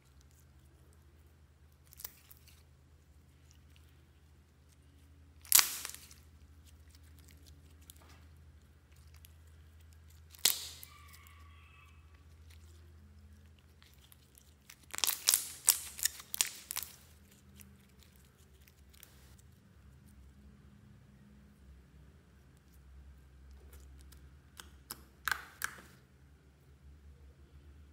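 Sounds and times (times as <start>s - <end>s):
slime crackling and popping: 1.7s - 2.7s, 4.7s - 11.3s, 13.4s - 19.3s, 23.6s - 26.0s.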